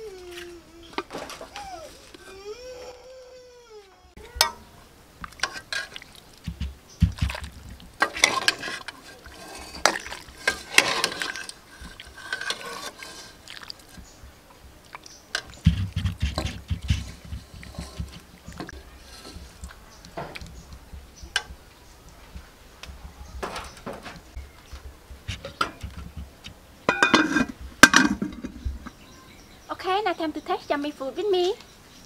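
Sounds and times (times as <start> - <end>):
soup splashing and pouring: 5.2 - 14.1
dull low thumps: 6.5 - 7.8, 15.6 - 18.6
ladle clinking on metal: 26.9 - 28.6.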